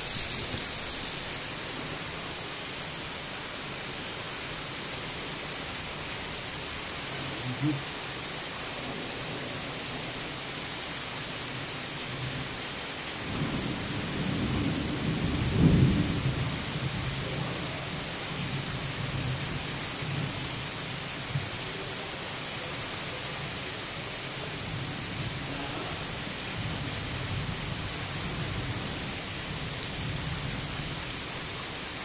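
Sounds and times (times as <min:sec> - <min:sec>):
heavy rain on pavement: 0:00.0 - 0:32.0
low thunder rumble: 0:13.2 - 0:20.5.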